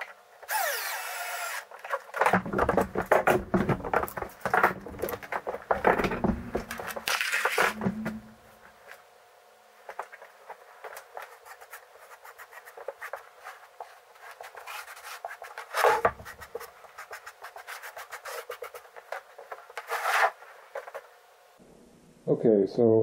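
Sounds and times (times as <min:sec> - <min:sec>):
frame knocking on bench: 0:02.3 - 0:07.0, 0:07.6 - 0:08.4.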